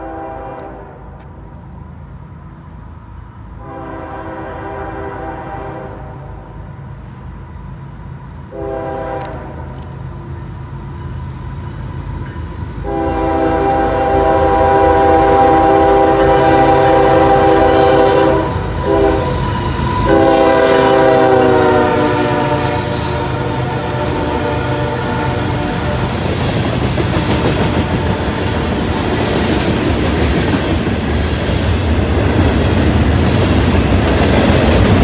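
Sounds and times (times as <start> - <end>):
locomotive air horn blasts: 0.0 - 1.2, 3.6 - 6.5, 8.5 - 9.8, 12.8 - 26.3, 27.4 - 28.9
train rumble: 0.0 - 35.0.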